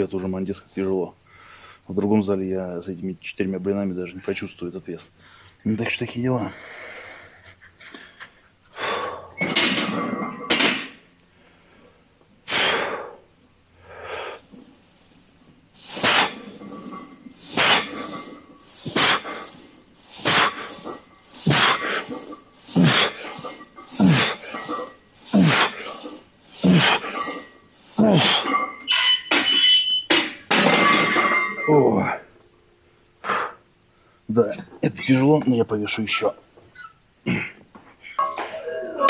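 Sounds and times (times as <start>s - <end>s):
man breathing hard: 8.7s - 9.4s, 11.3s - 14.7s, 17.4s - 28.5s
man grunting: 24.0s - 24.4s, 25.3s - 25.9s, 26.6s - 27.0s, 28.0s - 28.5s.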